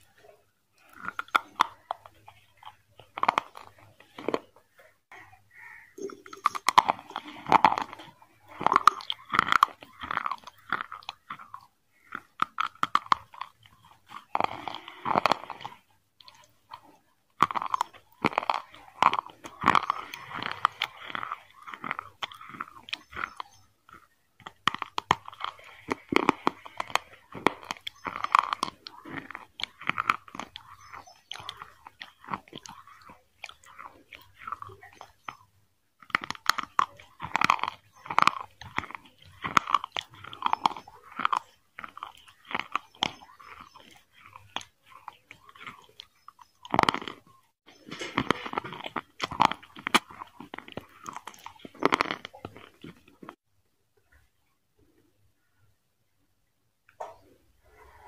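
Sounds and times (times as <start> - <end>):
person chewing and crunching food: 0.0 - 55.5, 56.9 - 58.0.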